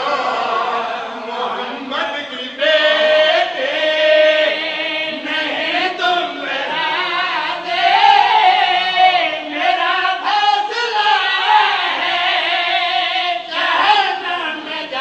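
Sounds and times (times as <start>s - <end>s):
men chanting together: 0.0s - 15.0s.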